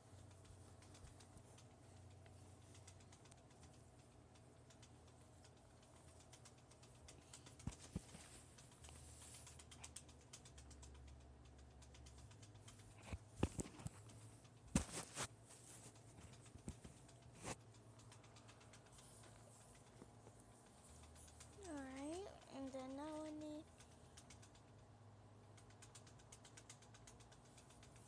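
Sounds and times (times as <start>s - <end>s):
toys and phone handled: 12.7s - 20.6s.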